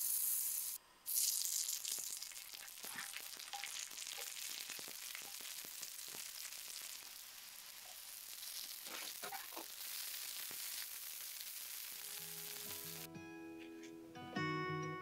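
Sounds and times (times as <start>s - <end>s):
food sizzling in hot fat: 0.0s - 13.1s.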